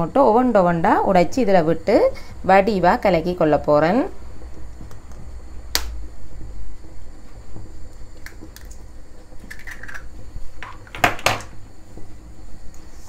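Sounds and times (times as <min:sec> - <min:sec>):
low steady hum: 0:00.0 - 0:13.0
egg cracking on metal bowl: 0:08.2 - 0:08.8, 0:09.4 - 0:11.5.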